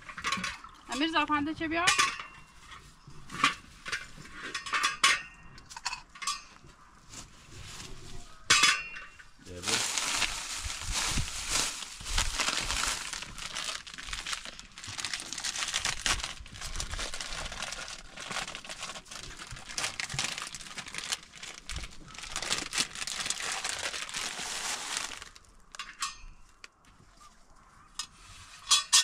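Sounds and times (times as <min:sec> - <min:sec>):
plastic bag crinkling: 0:09.5 - 0:25.8.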